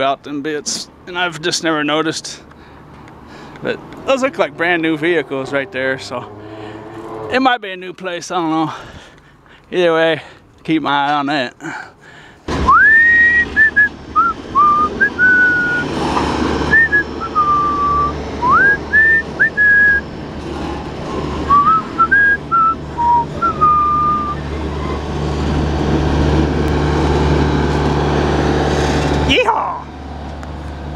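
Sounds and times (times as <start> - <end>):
high whistling tones: 12.5 - 16.0, 16.7 - 20.1, 21.5 - 25.0
freight train rumbling past: 12.5 - 30.9.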